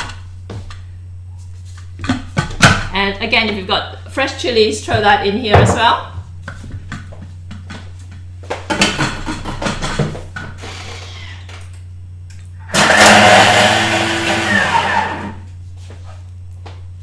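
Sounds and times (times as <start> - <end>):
food processor blade chopping: 12.7 - 15.4.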